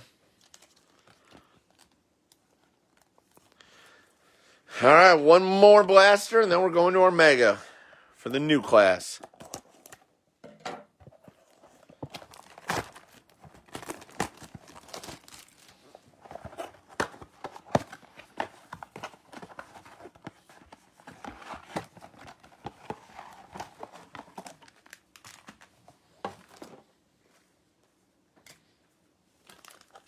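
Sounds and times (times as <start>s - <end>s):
foil packs crinkling and rustling: 0.0s - 4.0s, 11.0s - 26.9s, 29.4s - 30.0s
foil tearing: 12.2s - 15.7s.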